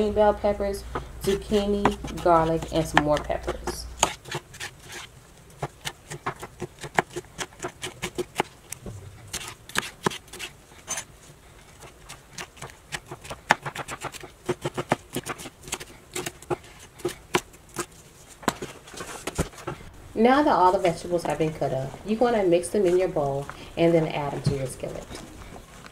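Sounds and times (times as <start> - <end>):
knife chopping on wooden board: 1.2 - 5.0, 5.6 - 8.5, 9.3 - 10.5.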